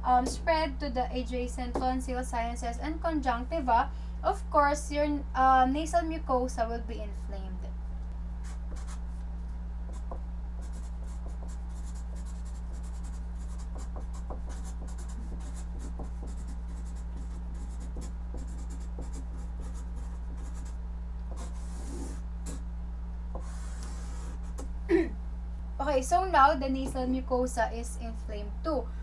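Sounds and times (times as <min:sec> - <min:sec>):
low hum: 0:00.0 - 0:29.0
marker writing on paper: 0:08.4 - 0:09.0, 0:09.9 - 0:22.6, 0:23.4 - 0:24.7.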